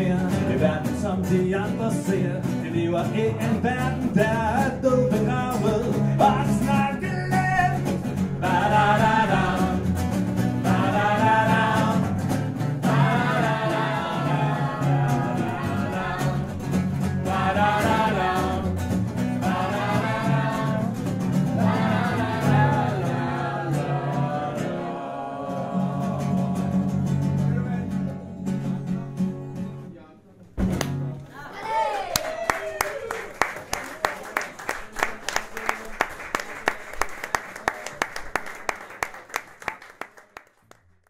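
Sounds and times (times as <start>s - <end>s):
voices singing wordless phrases: 0.0s - 28.6s
strummed acoustic guitars: 0.0s - 30.0s.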